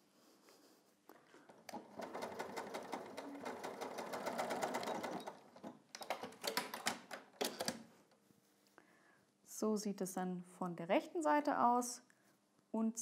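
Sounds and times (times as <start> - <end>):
sewing machine stitching: 1.5 - 7.8.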